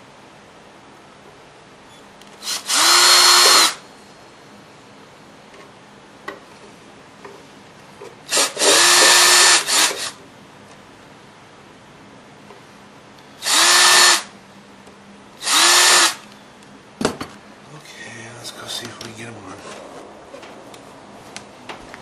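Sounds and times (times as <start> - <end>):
cordless drill drilling: 2.4 - 3.8, 8.3 - 10.2, 13.4 - 14.3, 15.4 - 16.3.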